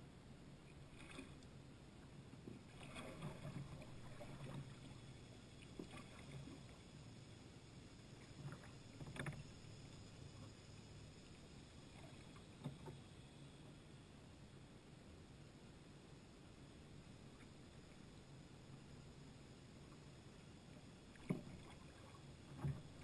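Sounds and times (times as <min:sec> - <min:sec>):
kayak paddle splashing water: 0:02.5 - 0:06.8, 0:21.0 - 0:23.0.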